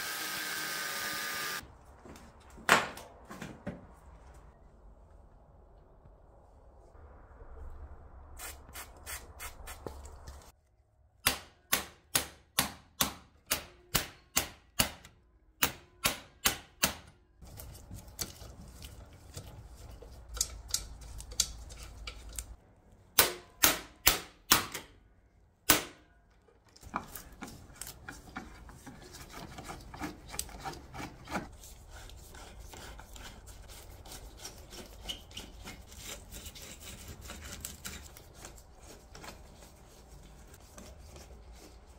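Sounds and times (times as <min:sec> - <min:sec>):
screwdriver scraping rusted screw: 0:26.8 - 0:39.4.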